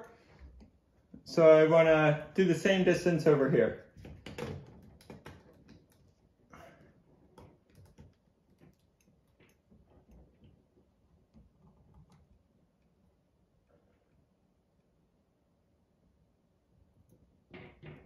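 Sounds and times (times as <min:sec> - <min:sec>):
faint clicks and light taps: 0:07.2 - 0:13.0.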